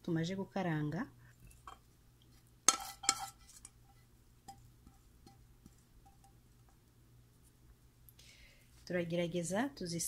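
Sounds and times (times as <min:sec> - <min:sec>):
pan clinking against glass dish: 0:02.7 - 0:03.4.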